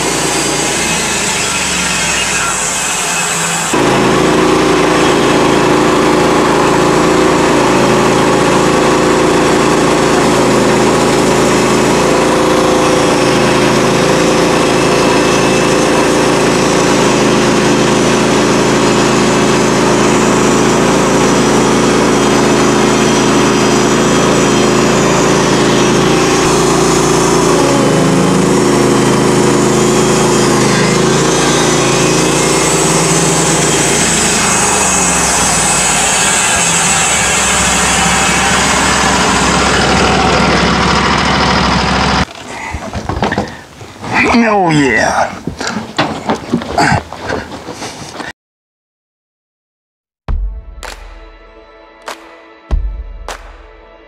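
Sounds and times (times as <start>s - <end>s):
sawmill engine at full throttle: 0.0s - 46.1s
band blade cutting log: 9.5s - 40.2s.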